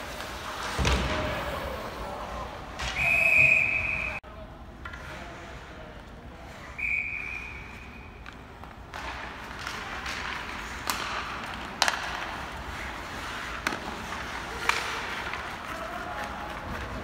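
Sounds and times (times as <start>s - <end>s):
hockey sticks and puck clacking: 0.0s - 2.0s, 4.7s - 17.0s
skates scraping ice: 0.0s - 4.2s, 4.8s - 17.0s
referee's whistle blowing: 2.9s - 4.2s, 6.8s - 8.1s.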